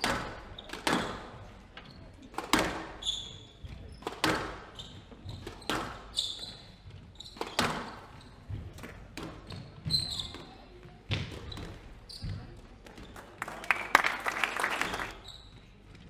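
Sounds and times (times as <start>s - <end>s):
shoes squeaking on wooden floor: 0.0s - 13.3s, 14.9s - 16.0s
squash ball cracking off rackets: 2.3s - 3.0s, 4.0s - 4.7s, 7.4s - 9.6s.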